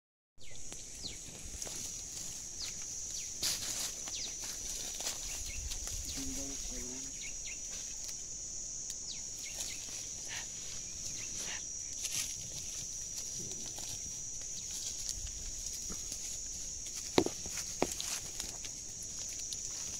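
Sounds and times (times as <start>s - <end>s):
insect drone: 0.4s - 19.9s
branches snapping and rustling: 12.0s - 19.9s.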